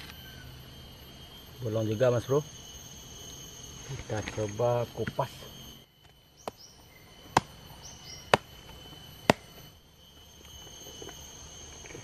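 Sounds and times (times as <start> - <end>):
machete chopping husk: 8.3 - 8.5, 9.2 - 9.6.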